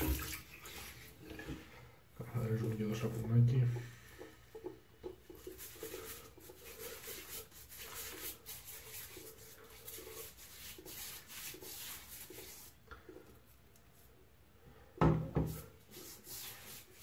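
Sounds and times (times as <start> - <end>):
shaving brush rubbing on face: 5.2 - 12.8, 15.8 - 17.0.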